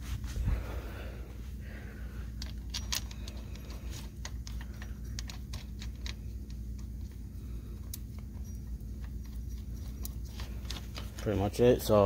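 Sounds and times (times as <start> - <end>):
steady low hum: 0.0 - 12.0
small metal parts clicking: 2.3 - 11.4.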